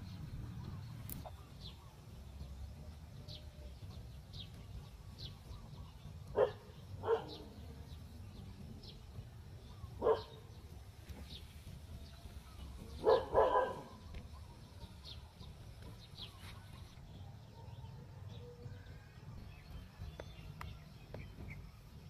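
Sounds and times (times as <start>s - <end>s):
animal bark-like call: 6.3s - 7.6s, 13.0s - 14.0s.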